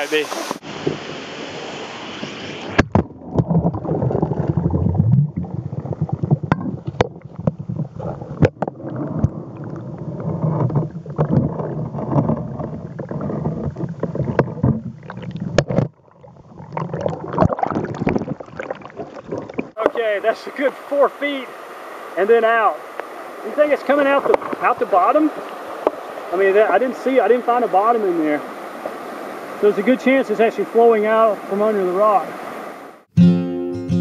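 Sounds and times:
muffled underwater churning rumble: 0:02.3 - 0:19.9, 0:22.8 - 0:29.7
sharp underwater clicks and knocks: 0:02.7 - 0:20.0.

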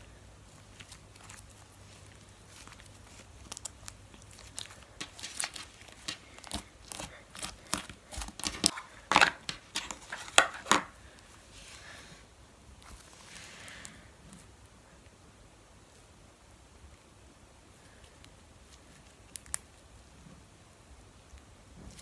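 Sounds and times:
slime squished with crackling pops: 0:02.5 - 0:10.9.

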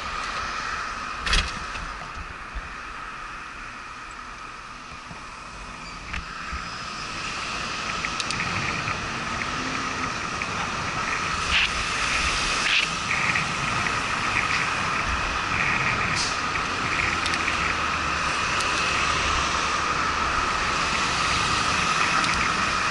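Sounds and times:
cars going by: 0:00.0 - 0:22.9
wind and road noise: 0:00.0 - 0:22.9
sharp clicks and rattles: 0:07.8 - 0:17.8, 0:21.9 - 0:22.7.

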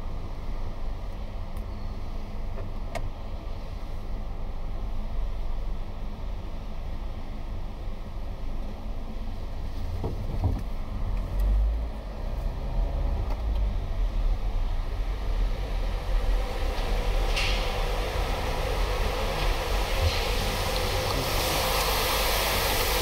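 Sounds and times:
car wash machinery rumbling: 0:11.9 - 0:23.0
rushing hiss: 0:16.4 - 0:23.0.

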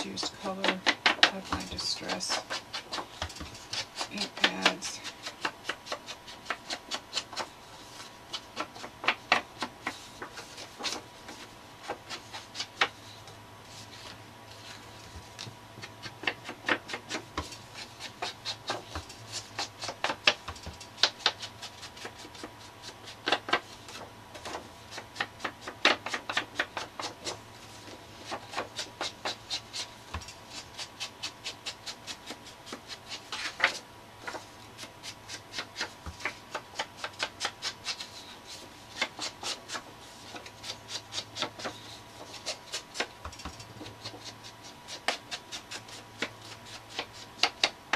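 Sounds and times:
ink pad tapping on paper: 0:00.6 - 0:05.8.

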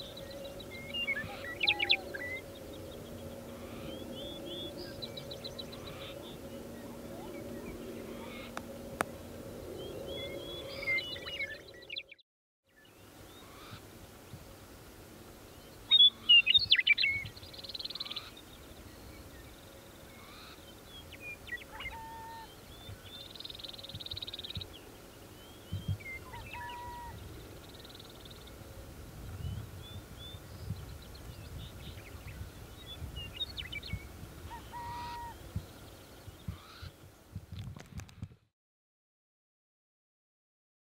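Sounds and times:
buzzy bird trills: 0:00.0 - 0:08.6.

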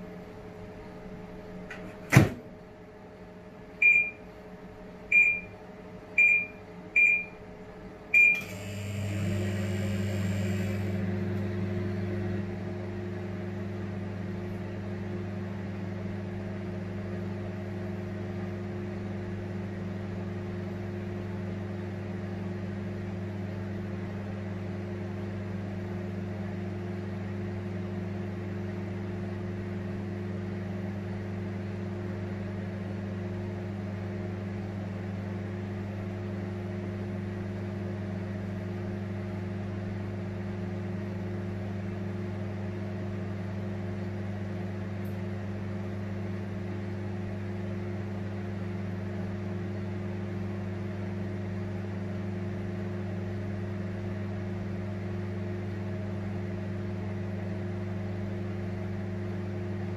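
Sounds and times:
microwave humming with fan noise: 0:00.0 - 0:59.9
microwave door latch click: 0:01.7 - 0:02.4
short keypad beeps: 0:03.8 - 0:04.2, 0:05.1 - 0:05.5, 0:06.2 - 0:07.4, 0:08.2 - 0:08.5.

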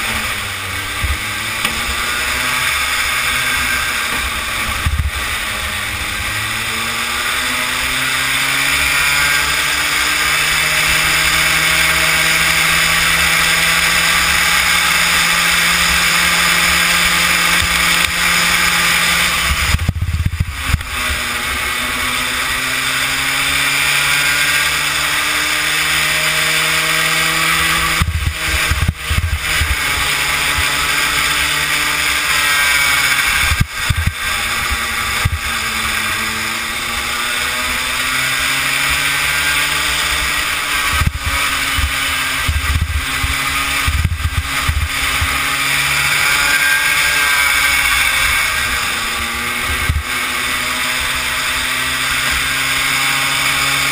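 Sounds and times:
kart engine running hard: 0:00.0 - 0:53.9
wind buffeting microphone: 0:04.2 - 0:06.2, 0:19.4 - 0:21.3, 0:40.8 - 0:45.6.

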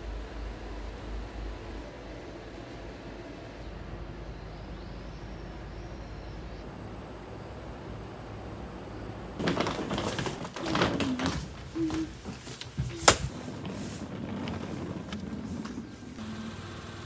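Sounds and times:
suitcase knocking and rattling: 0:09.4 - 0:15.9.

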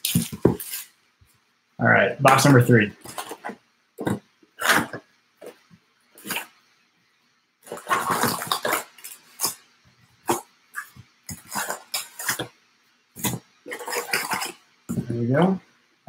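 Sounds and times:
card packs rustling: 0:00.0 - 0:01.0, 0:02.3 - 0:05.6, 0:06.2 - 0:06.5, 0:07.6 - 0:09.6, 0:10.2 - 0:12.5, 0:13.2 - 0:15.2.

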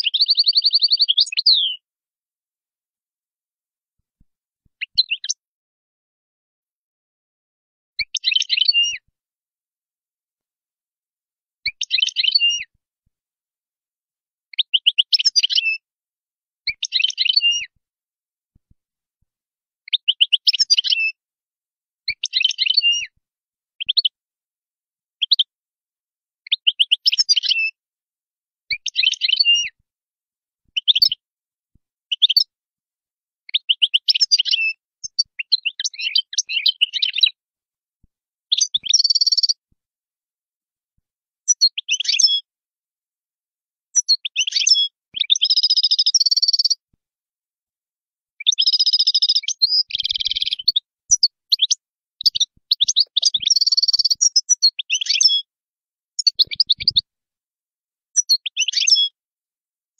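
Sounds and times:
goldfinch twittering: 0:48.6 - 0:55.4, 0:56.2 - 0:57.0.

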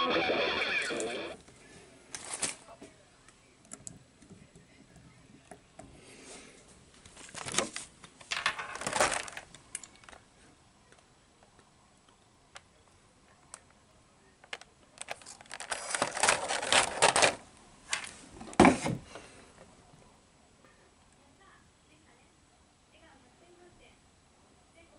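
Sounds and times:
plastic packaging crinkling: 0:07.1 - 0:10.2, 0:14.5 - 0:18.1.

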